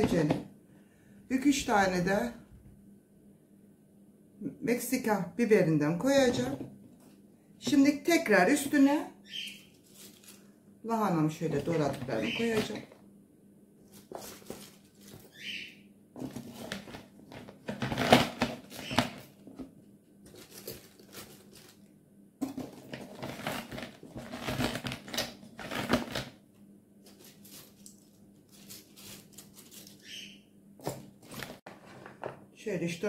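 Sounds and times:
cabbage crackling and rustling: 0:09.6 - 0:10.5, 0:13.9 - 0:15.6, 0:20.3 - 0:21.9, 0:22.6 - 0:26.2, 0:27.1 - 0:30.2.

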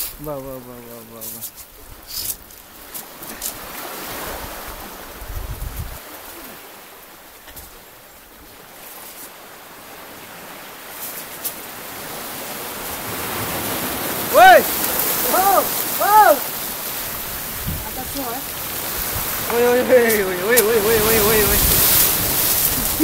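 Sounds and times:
waves washing on rocky shore: 0:00.0 - 0:23.0
wind rumble on microphone: 0:01.7 - 0:06.1, 0:15.2 - 0:23.0.

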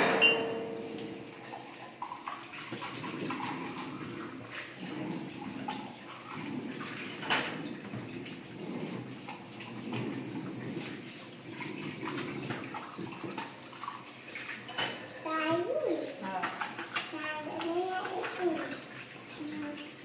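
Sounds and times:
crockery clinking and knocking: 0:00.0 - 0:01.2
tap running into sink: 0:05.6 - 0:11.0.

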